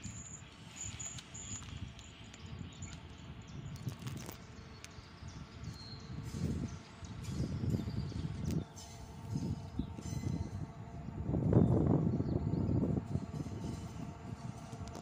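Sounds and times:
low uneven rumble: 6.1s - 15.0s.

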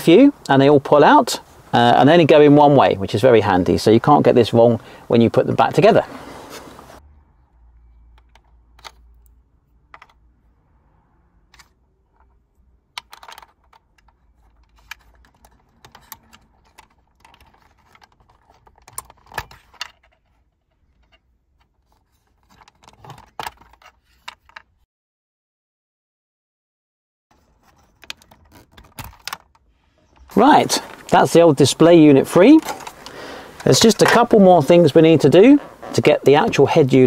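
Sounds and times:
plastic connectors clicking: 8.0s - 10.3s, 11.5s - 21.8s, 27.9s - 29.6s.

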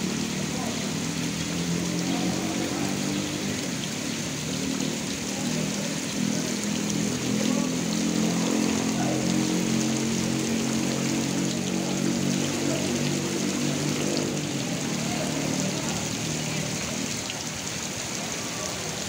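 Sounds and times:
rain on pavement: 0.0s - 19.0s.

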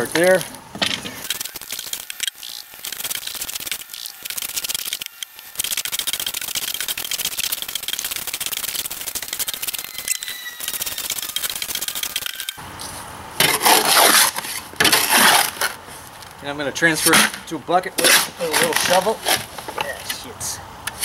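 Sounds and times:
shovel scraping concrete mix: 11.4s - 15.8s, 16.9s - 19.6s
hoe scraping wet gravel: 12.7s - 16.2s, 16.9s - 19.6s.

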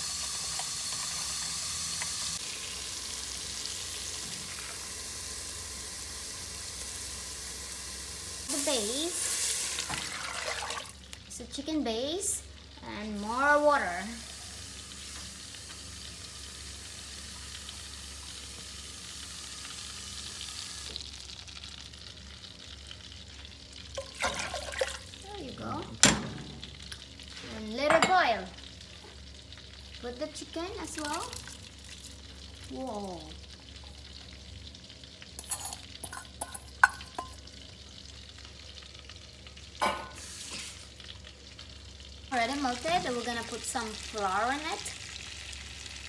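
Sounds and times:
broth boiling: 0.0s - 46.0s
butter sizzling in a pan: 0.0s - 46.0s
metal bowl clinking on pot: 35.4s - 37.4s.

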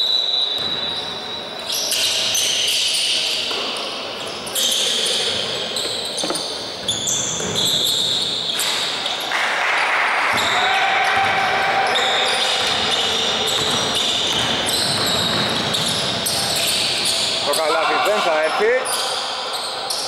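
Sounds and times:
sneakers squeaking on court: 0.4s - 9.2s, 11.9s - 20.0s
basketball bouncing: 11.1s - 11.4s, 12.4s - 16.7s
players calling out: 15.7s - 20.0s.

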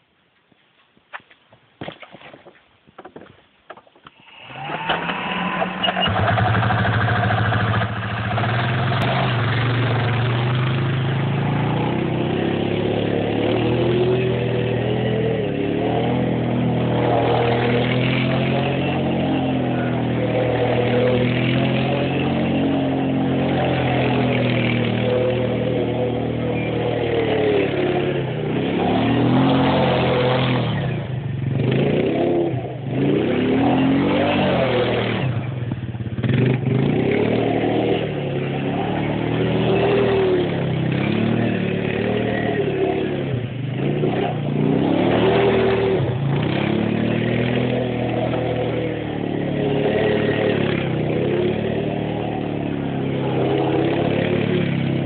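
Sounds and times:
quad engine starting and revving: 4.1s - 55.0s.

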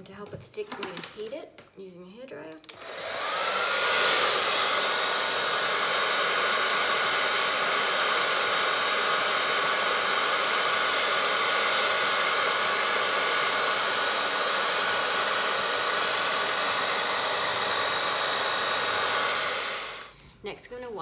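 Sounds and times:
hair dryer air hiss: 2.7s - 20.1s
hair dryer motor whine: 2.7s - 20.2s.

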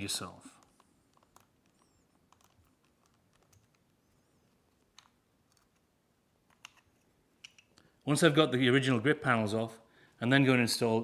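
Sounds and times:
faint clicks of small parts: 0.5s - 5.9s, 6.5s - 8.0s.

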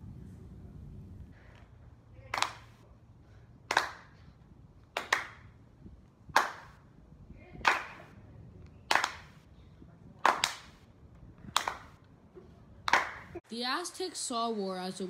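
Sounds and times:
people clapping: 2.3s - 2.7s, 3.7s - 4.1s, 5.0s - 5.4s, 6.4s - 6.8s, 7.6s - 8.1s, 8.9s - 9.4s, 10.2s - 10.8s, 11.5s - 12.0s, 12.8s - 13.3s.

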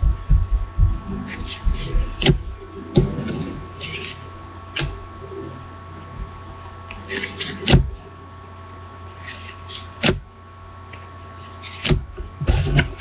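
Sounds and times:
electrical hum: 0.0s - 13.0s
cards swishing: 9.2s - 10.1s.

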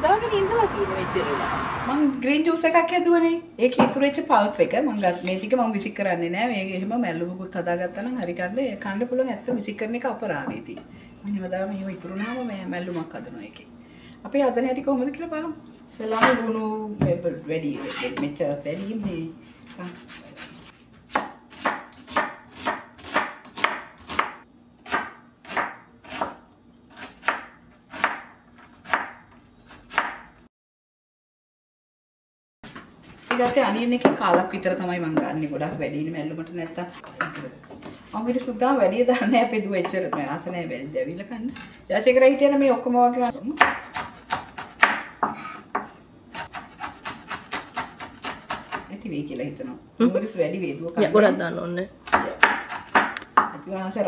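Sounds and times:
knife chopping on wooden board: 21.1s - 30.4s, 43.6s - 48.9s, 52.1s - 53.6s.

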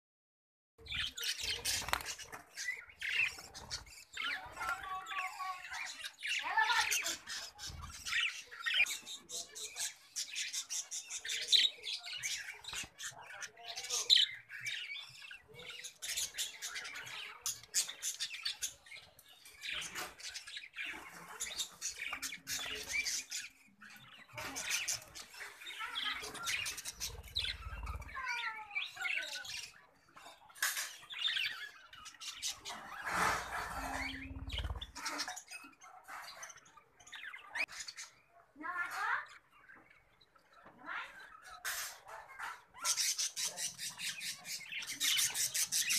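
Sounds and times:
budgerigars chattering: 5.7s - 28.3s, 28.9s - 38.2s, 41.3s - 45.9s.

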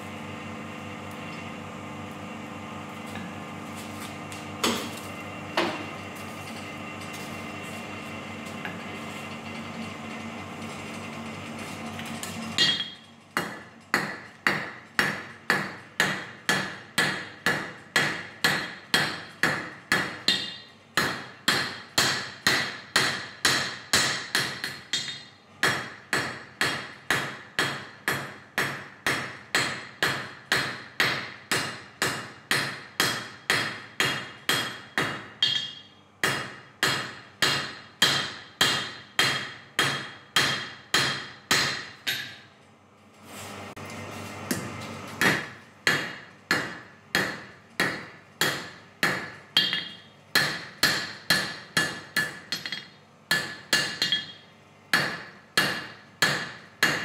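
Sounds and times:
forge blower humming: 0.0s - 57.0s
hammer ringing on anvil: 12.6s - 13.6s, 33.0s - 42.4s, 45.9s - 54.4s.

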